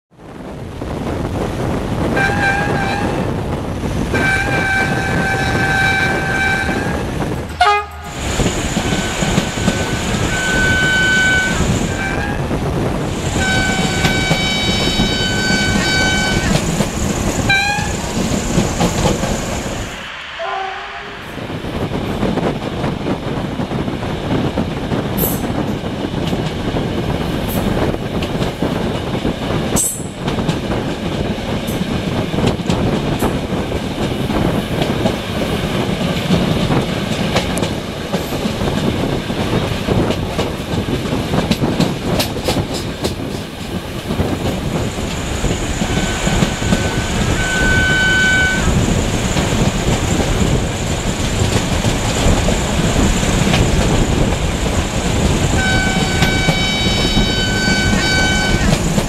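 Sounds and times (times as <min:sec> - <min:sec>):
train rumbling on rails: 0:00.1 - 0:59.0
train horn blasts: 0:02.2 - 0:03.3, 0:04.1 - 0:08.1, 0:08.9 - 0:12.5, 0:13.3 - 0:16.6, 0:17.5 - 0:18.0, 0:20.3 - 0:21.4, 0:45.8 - 0:48.8, 0:55.5 - 0:58.8.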